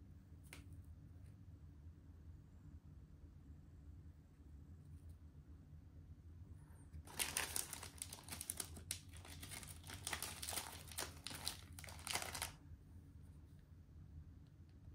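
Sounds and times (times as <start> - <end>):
snack wrappers crinkling: 7.1 - 12.6.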